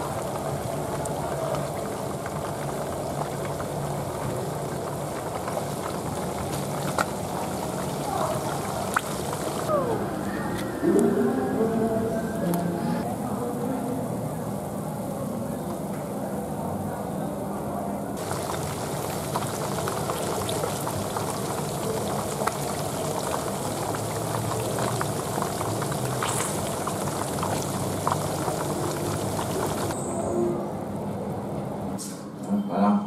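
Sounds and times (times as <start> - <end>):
hot oil bubbling and crackling: 0.0 - 9.7, 18.2 - 30.1.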